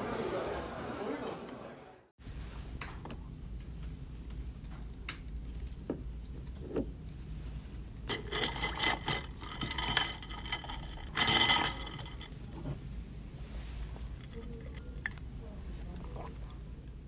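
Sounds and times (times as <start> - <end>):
low room hum: 0.0 - 17.0
ice cubes clinking against metal: 8.1 - 12.4.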